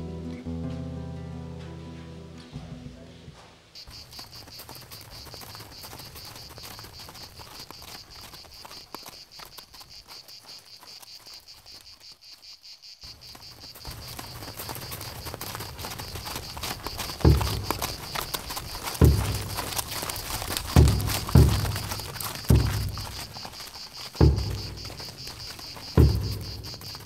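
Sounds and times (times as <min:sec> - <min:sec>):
insects chirring: 0:00.1 - 0:27.0
heavy low thump: 0:18.8 - 0:23.5, 0:24.2 - 0:27.0.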